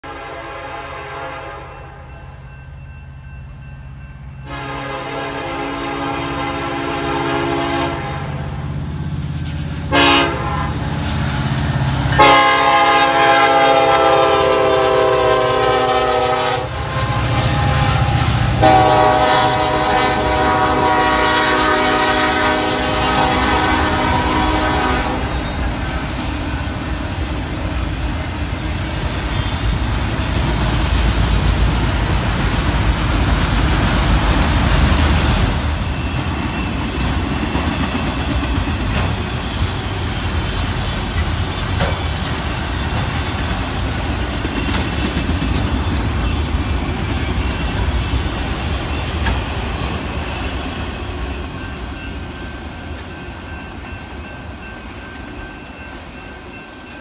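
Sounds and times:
train air horn blasts: 0.0 - 2.1, 4.4 - 8.8, 9.4 - 11.3, 12.0 - 25.6
train rumbling past: 0.0 - 57.0.

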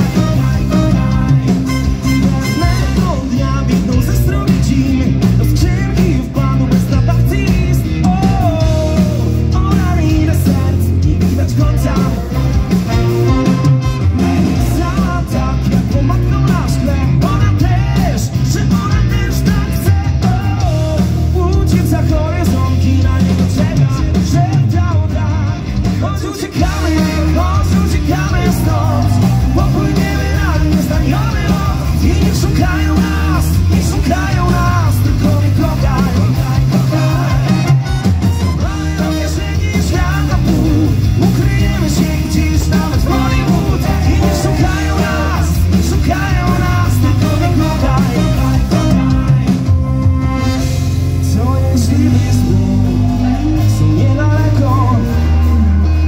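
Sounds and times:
accordion: 0.0 - 4.5, 11.0 - 18.0, 25.2 - 56.0
person singing: 0.0 - 50.1, 51.2 - 56.0
folk-rock band playing: 0.0 - 56.0
heavy bass pulse: 0.0 - 56.0.

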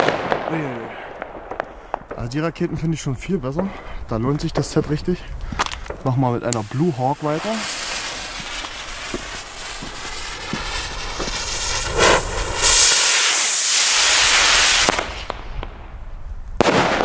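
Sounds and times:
firework bang: 0.0 - 2.2, 6.7 - 15.9, 16.6 - 17.0
firework fuse sizzling: 4.0 - 17.0
rocket motor rushing hiss: 6.6 - 15.0.

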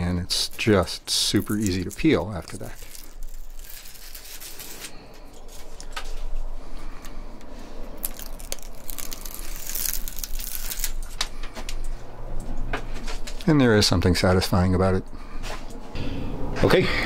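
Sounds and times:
paper backing peeled off tape: 0.4 - 6.2, 8.0 - 11.2.

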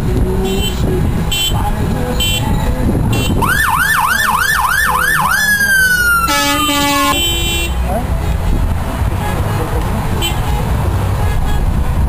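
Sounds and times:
engine noise: 0.0 - 12.0
fire truck siren: 3.4 - 7.2.

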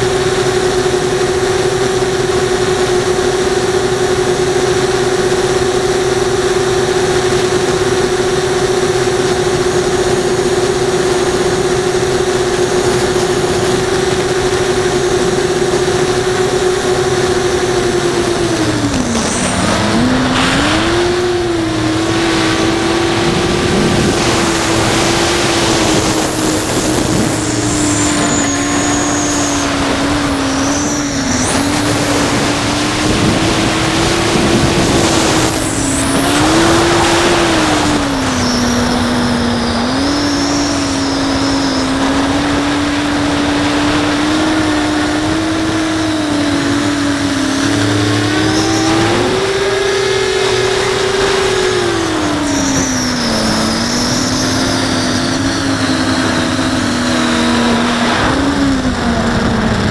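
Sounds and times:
drone motors buzzing whine: 0.0 - 59.9
rushing noise: 12.2 - 59.9.

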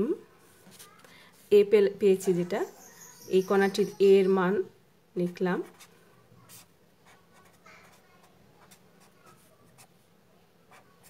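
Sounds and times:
pen scratching on paper: 5.6 - 9.9, 10.7 - 11.0.

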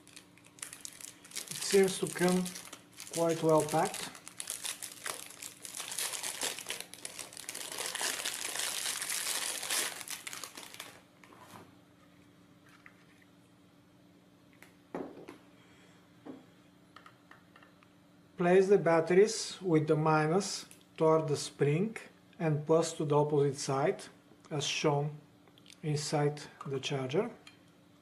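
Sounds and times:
plastic wrapping crinkling: 0.0 - 11.1.

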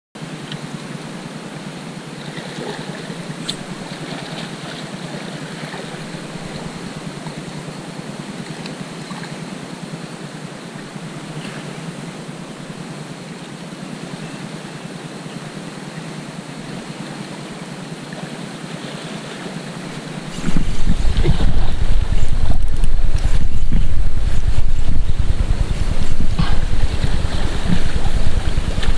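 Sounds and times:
sea water lapping against rocks: 2.2 - 7.8, 18.1 - 28.9.

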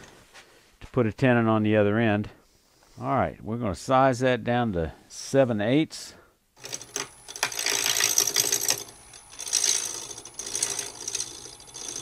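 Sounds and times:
turning tool scraping wood: 6.6 - 12.0
wood lathe whine: 6.6 - 12.0.

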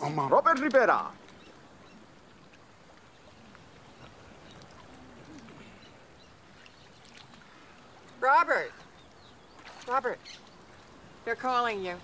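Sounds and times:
water lapping: 0.0 - 12.0.

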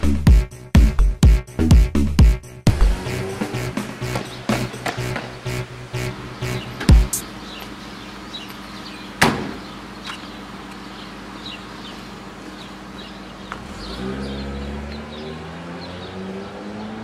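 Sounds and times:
car engine hum: 2.4 - 17.0
car door shutting: 3.7 - 5.5, 9.2 - 10.2.

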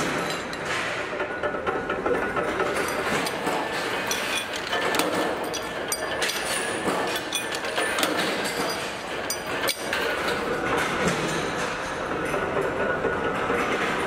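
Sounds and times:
workshop machinery clatter: 0.0 - 14.0
metallic clinks of steel parts: 2.7 - 10.3.

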